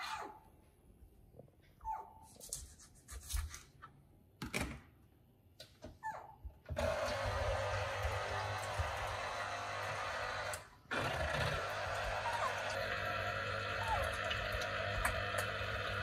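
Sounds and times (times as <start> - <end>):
electric juicer whirring: 6.7 - 16.0.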